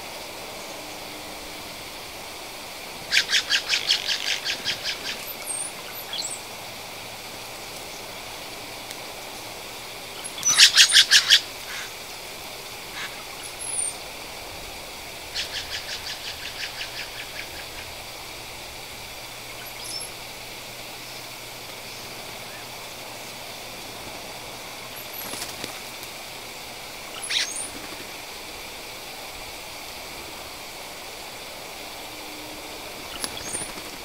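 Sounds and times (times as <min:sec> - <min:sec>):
woodpeckers calling: 0:03.0 - 0:06.5, 0:10.1 - 0:14.2, 0:15.2 - 0:17.9, 0:19.4 - 0:23.0, 0:26.6 - 0:28.4, 0:33.0 - 0:34.0.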